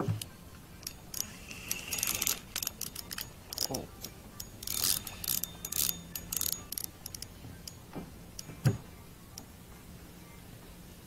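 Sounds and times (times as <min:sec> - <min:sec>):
fishing reel clicking: 0:00.8 - 0:07.8.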